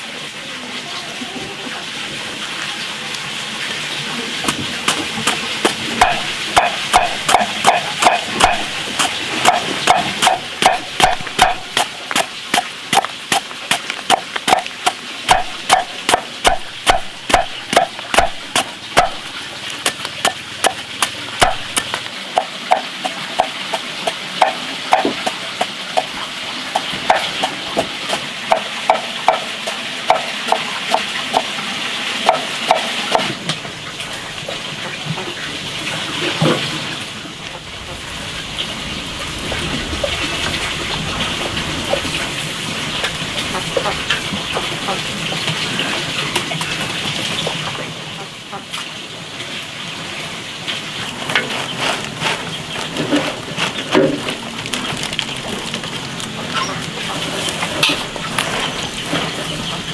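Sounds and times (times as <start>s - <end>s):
knife chopping on wooden block: 4.5s - 23.5s.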